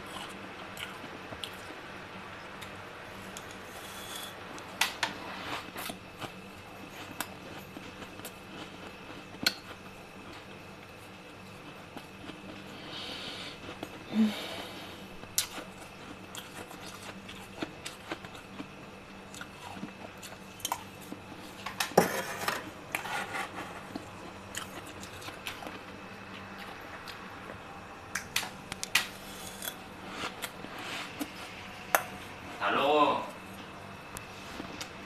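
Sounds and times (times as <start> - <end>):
frost being chewed crunching: 5.6 - 12.9, 13.5 - 14.1, 15.1 - 21.7, 23.7 - 31.6.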